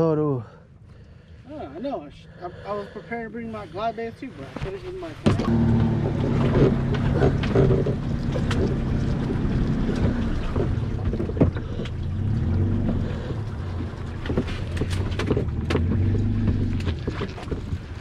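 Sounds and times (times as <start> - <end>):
trailer knocking and rattling: 5.2 - 18.0
vehicle engine running under load: 5.3 - 18.0.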